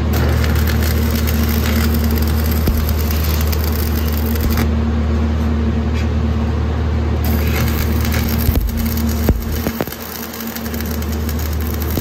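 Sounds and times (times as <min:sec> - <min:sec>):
welding arc crackling and hissing: 0:00.0 - 0:04.7, 0:07.2 - 0:12.0
steady low hum: 0:00.0 - 0:12.0.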